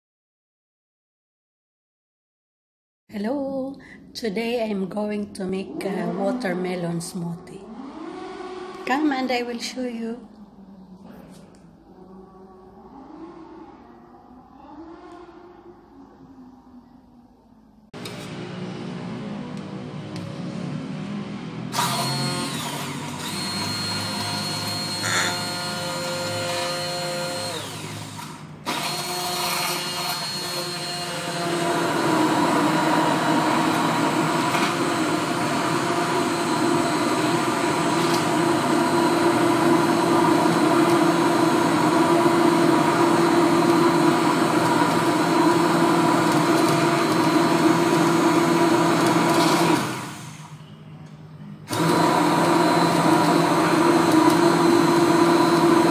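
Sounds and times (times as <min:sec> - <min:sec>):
stick blender whirring: 0:07.6 - 0:09.4, 0:21.7 - 0:50.6, 0:51.7 - 0:55.9.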